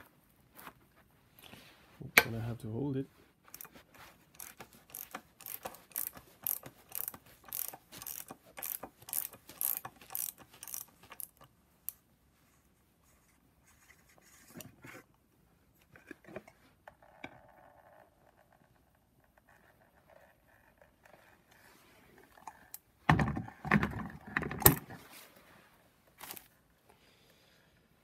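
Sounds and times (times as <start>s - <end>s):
ratchet wrench clicking: 4.4s - 11.5s.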